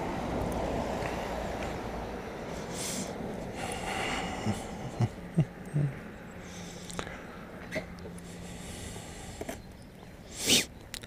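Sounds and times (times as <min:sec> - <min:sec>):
breathy rushes: 0:02.4 - 0:07.4.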